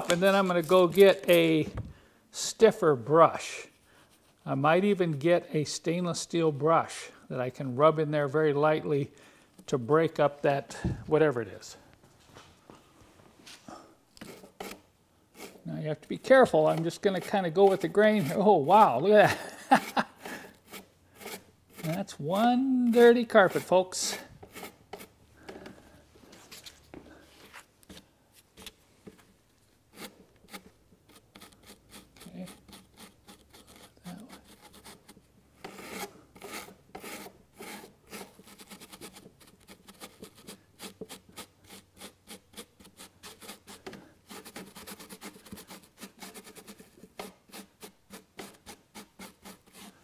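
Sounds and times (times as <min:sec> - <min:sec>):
hand brush scrubbing wet carpet: 0:15.4 - 0:20.0, 0:20.7 - 0:25.1.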